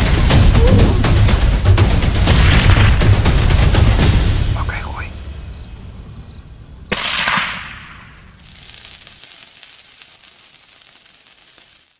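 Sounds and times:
crackling hiss with tiny pops: 6.9s - 11.9s.

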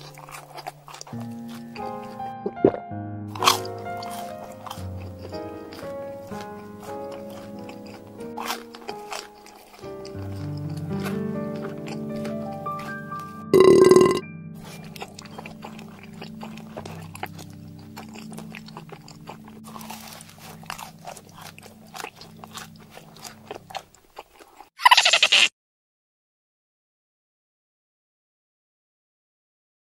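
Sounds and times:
light background music: 0.0s - 24.0s
crunchy chewing clicks: 0.0s - 25.5s
loud burp: 13.5s - 14.2s
cartoon chomp: 24.8s - 25.5s.

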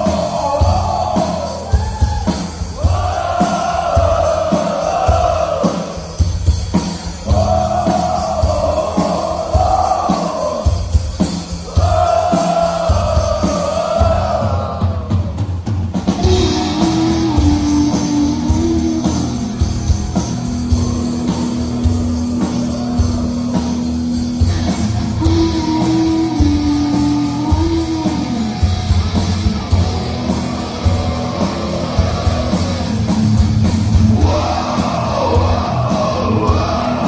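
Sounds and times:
drum and bass beat: 0.0s - 37.0s
person singing: 16.2s - 19.8s, 25.1s - 28.7s, 34.2s - 37.0s.

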